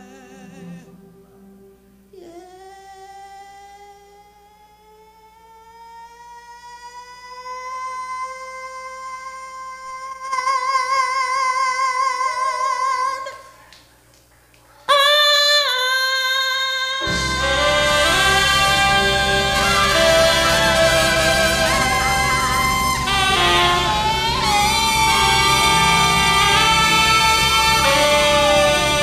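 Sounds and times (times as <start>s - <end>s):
woman singing long notes: 0.0s - 13.5s, 14.9s - 29.0s
backing band with bass: 17.0s - 29.0s.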